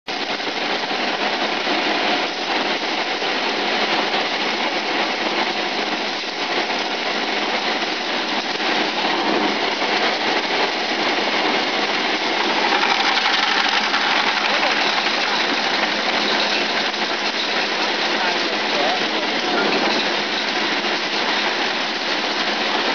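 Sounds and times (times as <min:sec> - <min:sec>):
peanut sheller running: 0:12.0 - 0:18.5.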